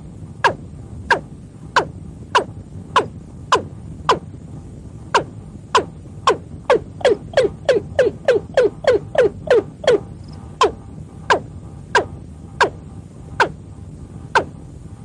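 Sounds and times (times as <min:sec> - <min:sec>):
low rumble: 0:00.0 - 0:15.0
bird calling with sliding notes: 0:05.2 - 0:12.8.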